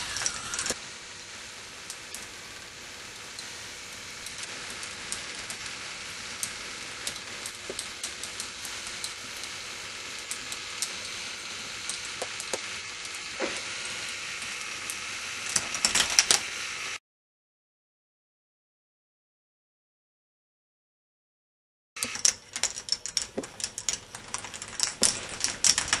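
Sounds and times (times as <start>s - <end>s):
mechanical running noise: 0.0s - 17.0s, 22.0s - 26.0s
plastic balls clattering on track: 4.2s - 14.7s, 22.0s - 26.0s.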